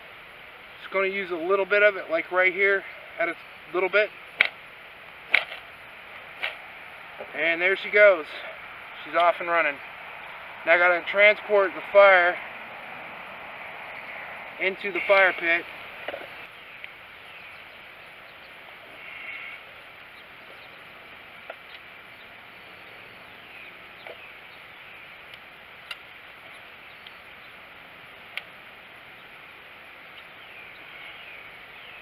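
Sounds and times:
faint fire hiss: 0:00.0 - 0:31.8
fire snapping: 0:04.3 - 0:07.3.

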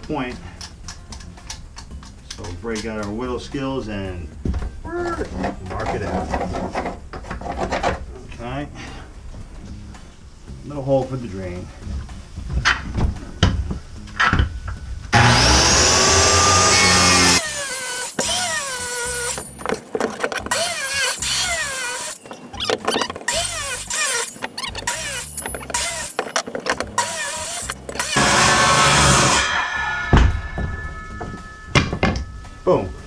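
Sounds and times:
background music: 0:00.0 - 0:33.0
knocks and clatter: 0:04.4 - 0:08.1, 0:19.3 - 0:21.2, 0:24.2 - 0:29.5
circular saw cutting plywood: 0:15.2 - 0:19.4, 0:20.5 - 0:22.2, 0:23.3 - 0:26.3, 0:26.9 - 0:30.1.

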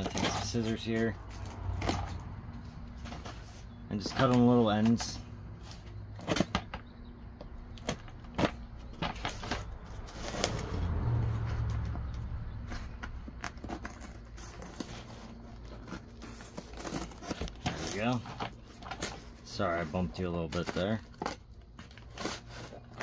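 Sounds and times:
cardboard rustle: 0:00.0 - 0:06.7, 0:07.8 - 0:10.8, 0:12.6 - 0:23.0
scissors cutting cardboard: 0:12.7 - 0:23.0.

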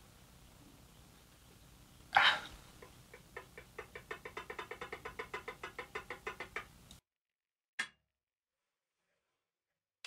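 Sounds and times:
rapid metallic ticking: 0:02.8 - 0:06.8.

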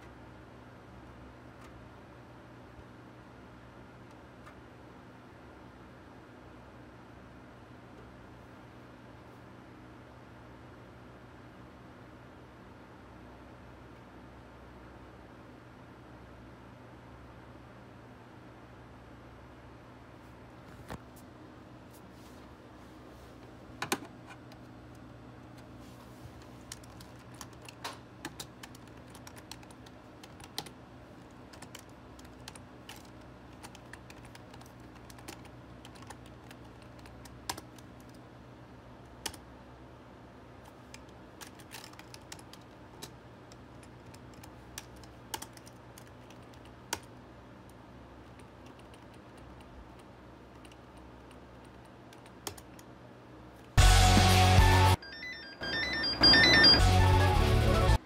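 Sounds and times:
faint steady hum: 0:00.0 - 0:53.8
keyboard typing: 0:26.4 - 0:38.2, 0:40.7 - 0:47.1, 0:48.2 - 0:52.9, 0:55.0 - 0:58.0.

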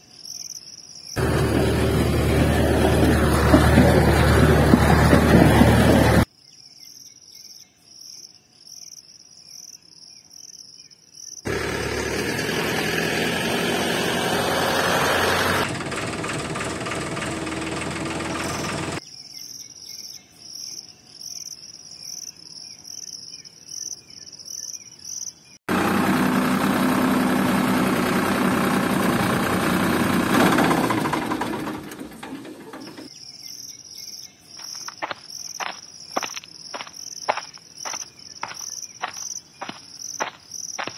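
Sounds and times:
insects chirping: 0:00.0 - 0:01.2, 0:06.2 - 0:11.5, 0:19.0 - 0:25.6, 0:32.8 - 0:40.9.

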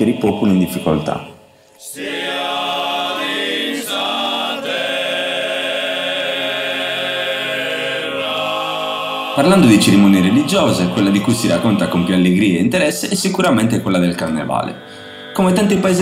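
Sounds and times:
group of voices singing chords: 0:00.0 - 0:12.9, 0:14.2 - 0:16.0.

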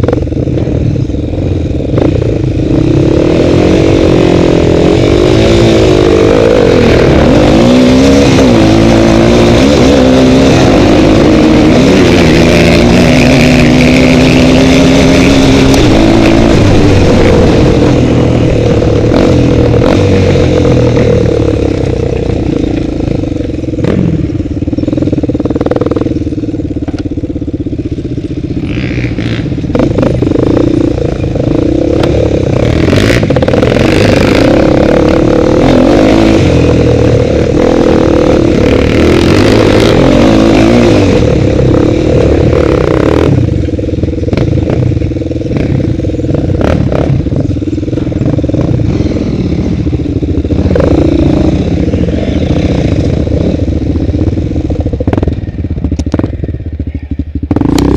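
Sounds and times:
clattering over rough trail: 0:00.0 - 0:57.9
quad bike engine running hard: 0:00.0 - 0:57.9.

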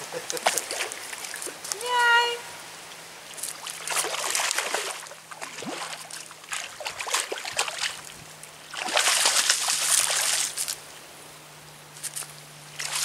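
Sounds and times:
fish thrashing in water: 0:03.3 - 0:10.8, 0:12.7 - 0:13.0
net scooping through water: 0:03.3 - 0:10.8, 0:12.7 - 0:13.0.

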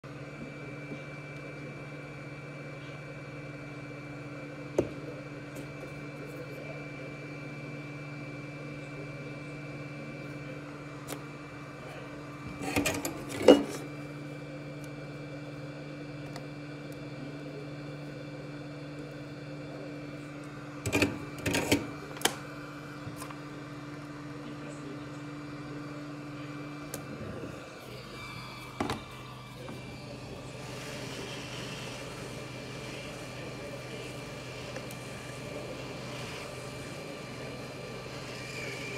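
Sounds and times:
bench equipment hum: 0:00.0 - 0:38.9.

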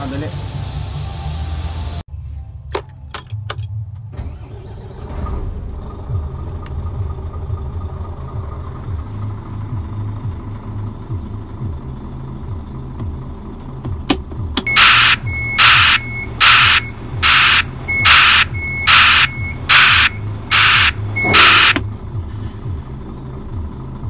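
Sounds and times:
truck engine idling: 0:04.2 - 0:24.0
truck backup alarm beeps: 0:14.7 - 0:21.8.

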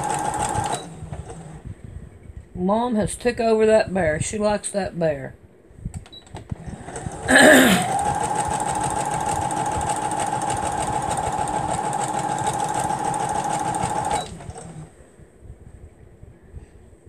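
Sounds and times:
sewing machine whine: 0:00.0 - 0:01.6, 0:06.5 - 0:14.9.

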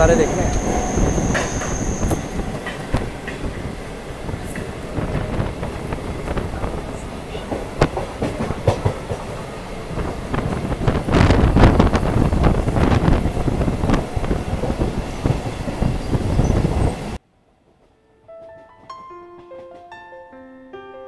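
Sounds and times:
train rumbling: 0:00.0 - 0:19.9
wheels clacking over rail joints: 0:06.4 - 0:09.5.

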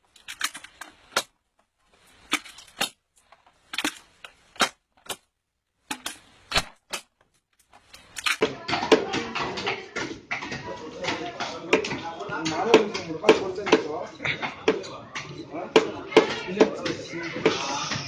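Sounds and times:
nut shells cracking: 0:00.0 - 0:08.4.

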